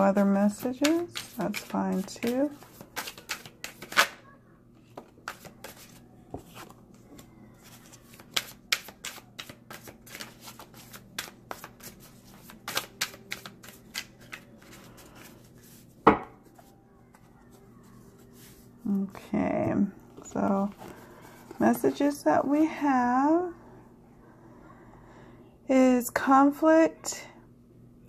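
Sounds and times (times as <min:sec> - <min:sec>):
card deck shuffling: 0:00.6 - 0:04.1, 0:05.0 - 0:06.7, 0:07.6 - 0:15.9.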